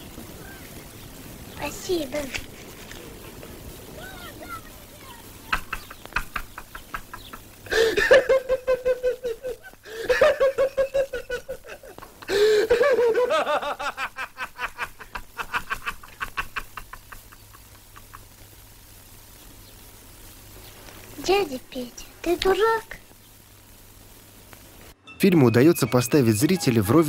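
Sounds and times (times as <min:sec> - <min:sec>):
person laughing: 0:05.4 - 0:18.3.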